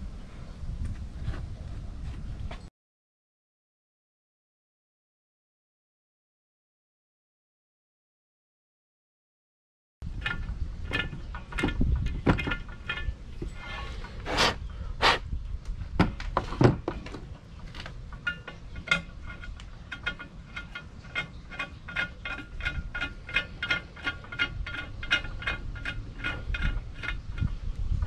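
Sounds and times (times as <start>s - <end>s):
metal tool scraping aluminium: 10.1s - 15.3s, 18.1s - 28.0s.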